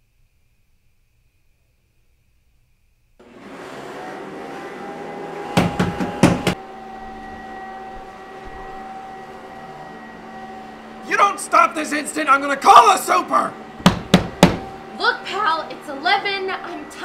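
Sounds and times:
machine drone with whine: 0.0 - 17.0
fist banging on wall: 5.6 - 6.6, 13.8 - 14.7.

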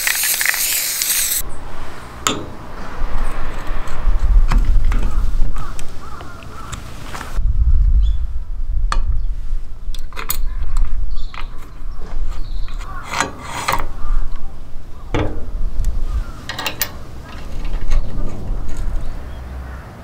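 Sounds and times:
low rumble: 1.4 - 6.5, 7.3 - 12.9, 13.9 - 19.6
metal parts clicking and scraping: 9.9 - 14.4, 15.1 - 19.4.

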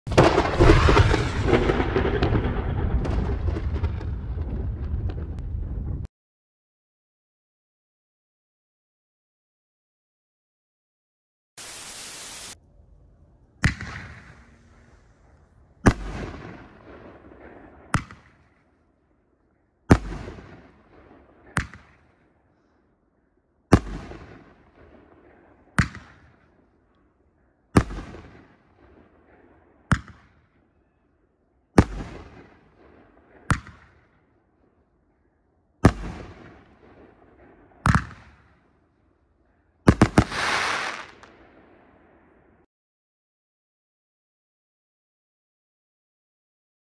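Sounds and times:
firework reports with echo: 0.1 - 6.1, 11.6 - 12.6, 13.6 - 18.8, 35.8 - 38.7, 39.9 - 42.4.

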